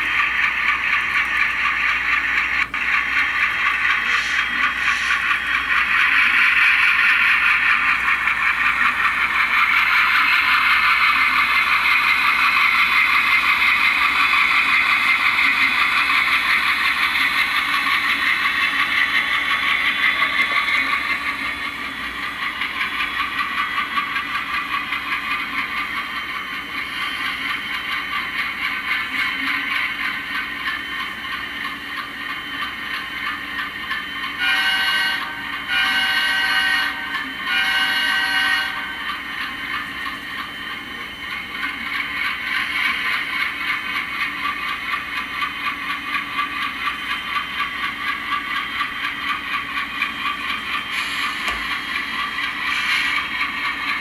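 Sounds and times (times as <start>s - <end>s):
model locomotive engine chug: 0.0s - 54.0s.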